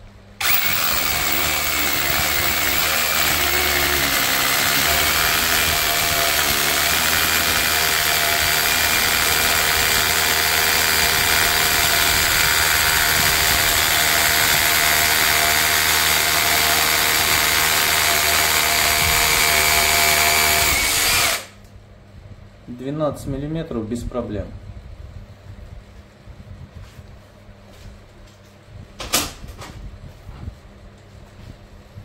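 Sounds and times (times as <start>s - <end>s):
rotary hammer drilling concrete: 0.4s - 21.6s.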